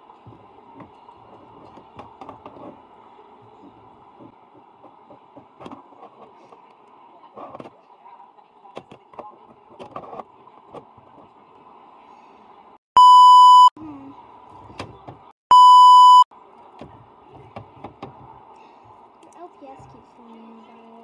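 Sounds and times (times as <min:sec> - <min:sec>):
electronic censor bleeps: 0:13.0 - 0:13.8, 0:15.5 - 0:16.3.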